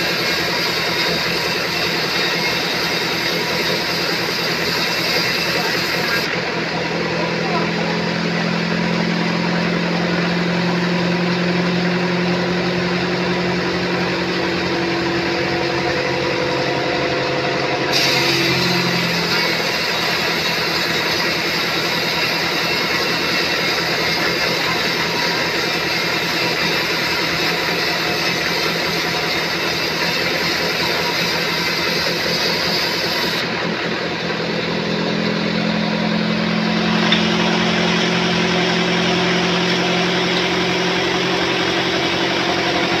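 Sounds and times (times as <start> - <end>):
sawmill saw cutting log: 0.0 - 43.0.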